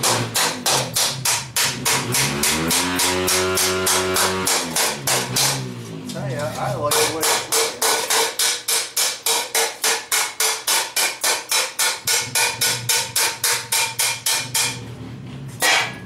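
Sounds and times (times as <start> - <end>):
hammer ringing on hot steel: 6.9 - 14.8, 15.6 - 16.0.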